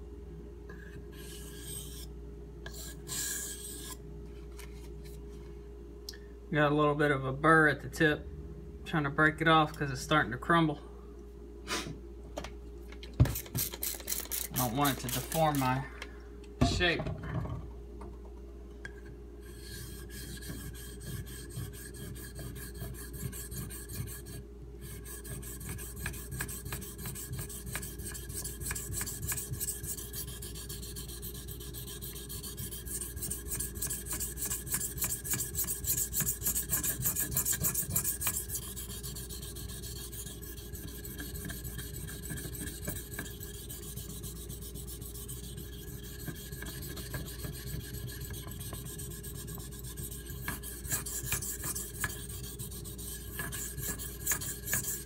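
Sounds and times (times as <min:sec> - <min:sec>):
knife scraping on whetstone: 0:01.1 - 0:02.1, 0:02.7 - 0:04.0, 0:19.4 - 0:55.0.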